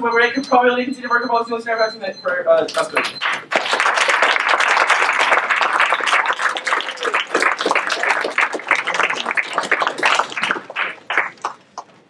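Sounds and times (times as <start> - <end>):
audience applauding: 2.7 - 12.0.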